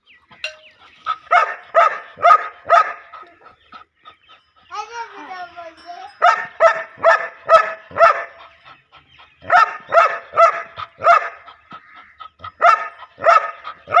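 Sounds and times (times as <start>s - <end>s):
dog barking loudly: 1.1s - 3.6s, 6.2s - 8.6s, 9.4s - 14.0s.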